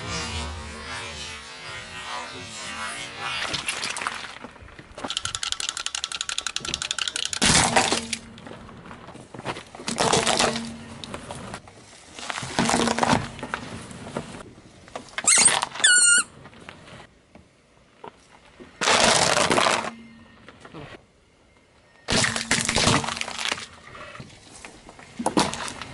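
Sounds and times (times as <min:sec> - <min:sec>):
tyre crushing small objects: 0:09.4 - 0:11.2, 0:22.1 - 0:23.8.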